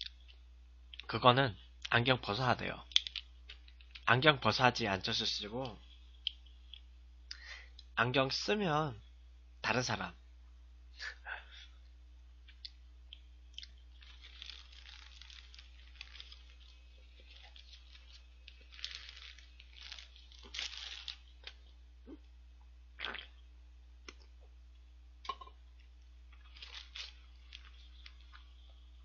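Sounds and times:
faint electrical hum: 0.0s - 29.0s
chewing and crunching burger: 12.5s - 21.7s, 25.3s - 29.0s
paper wrapper rustling: 13.9s - 21.6s, 26.4s - 28.4s.

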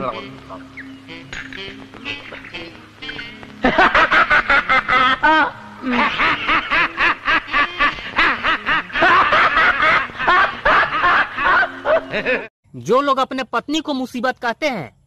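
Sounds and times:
man laughing hard: 3.6s - 12.5s.

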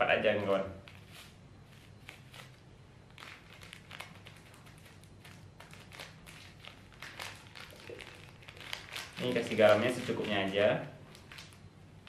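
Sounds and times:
plastic packet crinkling: 2.1s - 11.6s.

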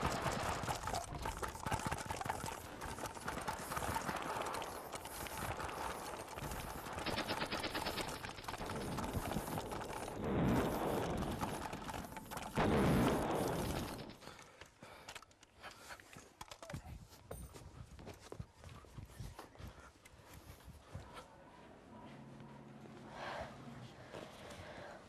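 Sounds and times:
rapid gunfire crackle: 0.0s - 14.5s.

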